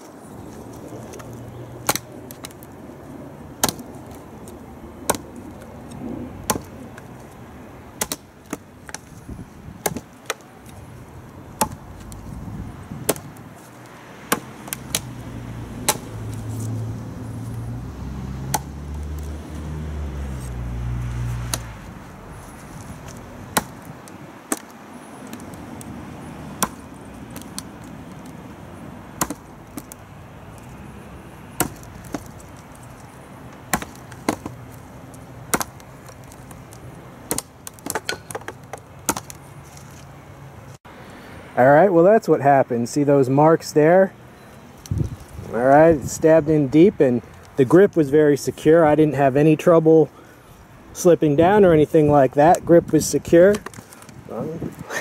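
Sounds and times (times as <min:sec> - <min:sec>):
blade stabbing into wood: 0:01.0 - 0:02.7, 0:03.6 - 0:07.1, 0:08.0 - 0:09.2, 0:09.8 - 0:10.8, 0:11.6 - 0:12.3, 0:12.9 - 0:16.8, 0:18.4 - 0:19.7, 0:20.4 - 0:21.9, 0:22.5 - 0:28.4, 0:29.2 - 0:30.0, 0:31.5 - 0:32.9, 0:33.6 - 0:39.4.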